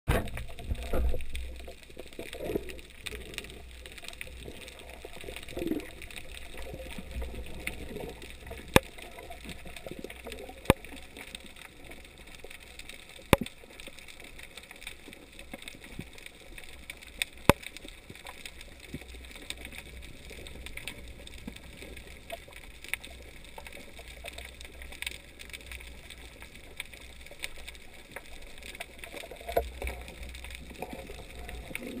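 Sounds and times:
muffled underwater rumble: 0.1 - 32.0
sharp underwater clicks: 0.1 - 32.0.

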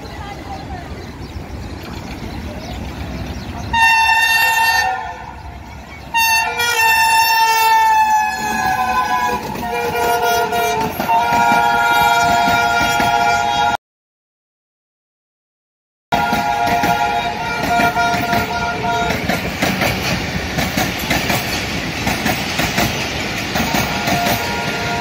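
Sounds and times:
passing train rumble: 0.0 - 13.8, 16.1 - 25.0
locomotive horn blasts: 3.7 - 5.4, 6.1 - 13.8, 16.1 - 19.4, 23.6 - 25.0.

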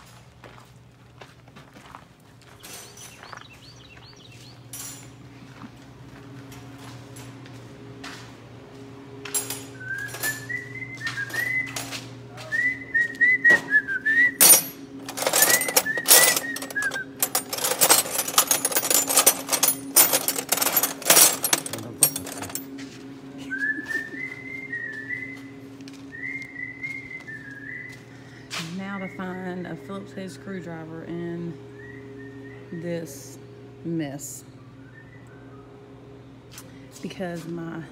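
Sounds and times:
steady low hum: 0.0 - 37.9
person whistling a tune: 9.8 - 11.8, 12.4 - 14.4, 23.4 - 25.5, 26.1 - 28.1
wrenches clattering in a drawer: 14.4 - 22.7.

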